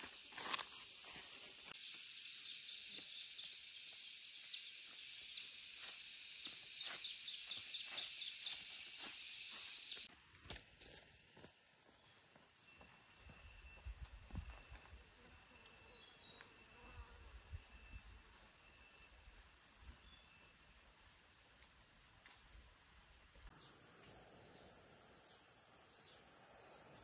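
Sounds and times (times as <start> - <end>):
high insect drone: 0.0 - 27.0
bird chirps: 4.4 - 10.1.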